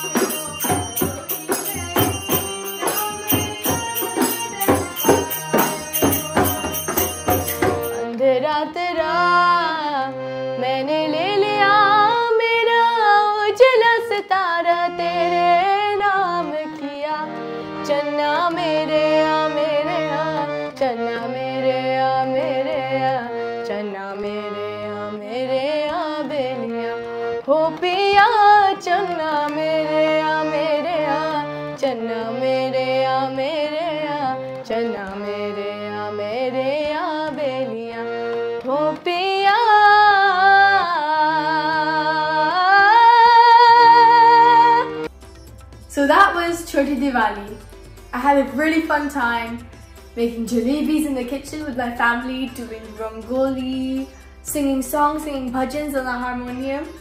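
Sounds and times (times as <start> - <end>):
girl singing devotional song: 0.0 - 45.0
harmonium chords: 0.0 - 57.0.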